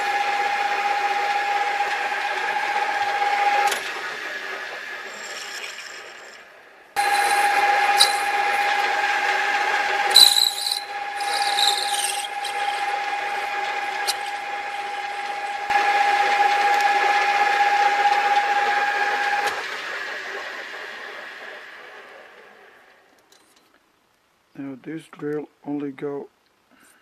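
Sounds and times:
lathe motor whine: 0.0s - 23.0s
drill bit scraping squeals: 7.0s - 15.7s.

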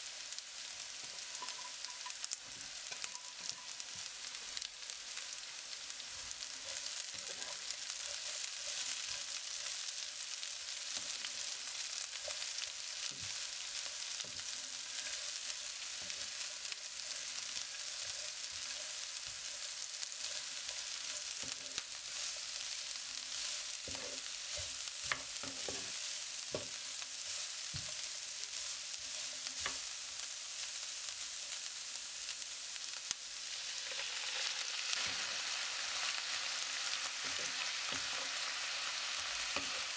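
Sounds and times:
vegetables sizzling in oil: 0.0s - 39.9s
wooden spatula scraping pan: 6.6s - 10.0s, 23.3s - 29.8s.

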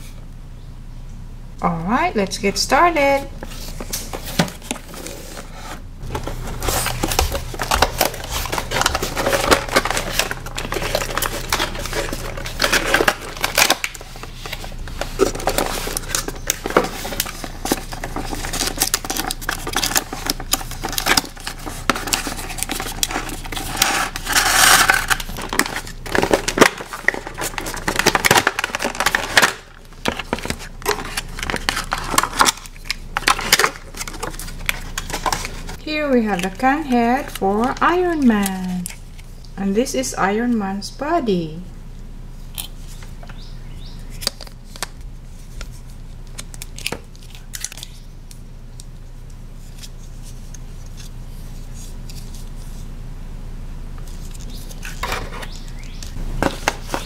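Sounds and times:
cardboard packaging clicking and scraping: 3.0s - 39.4s, 42.5s - 48.9s, 54.0s - 57.0s
plastic bag crinkling: 6.0s - 39.2s.

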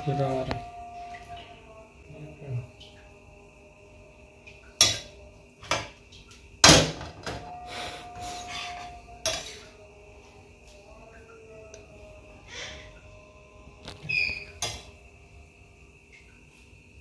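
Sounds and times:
faint ringing tone: 0.0s - 3.6s
utensils and dishes clattering: 4.8s - 6.0s, 6.6s - 9.8s.

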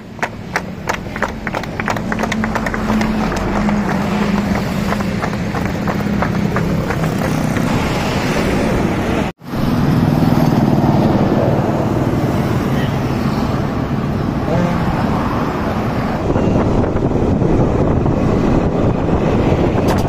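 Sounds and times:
motorcycle engines running: 0.0s - 9.0s
street traffic: 0.0s - 20.0s.

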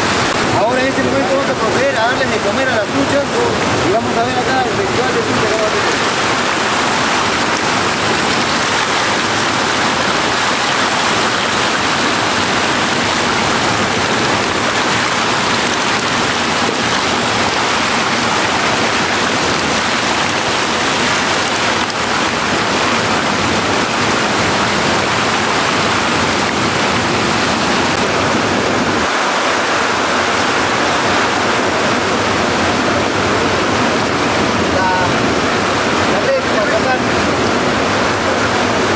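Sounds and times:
water pouring into pond: 4.7s - 28.0s.

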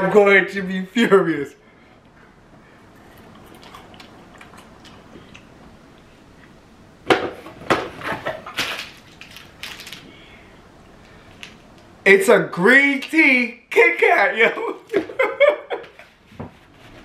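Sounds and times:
wafer crunching while chewed: 3.0s - 5.5s
wrapper crackles and rustles: 8.5s - 10.2s.

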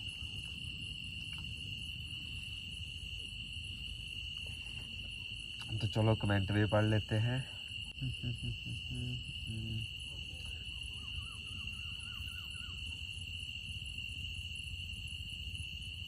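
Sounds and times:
crickets chirring: 0.0s - 16.0s
faint wavering call: 8.9s - 13.0s.

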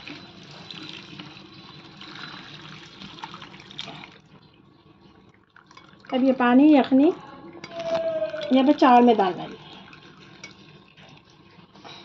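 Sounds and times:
liquid splashing pour: 0.0s - 4.2s.

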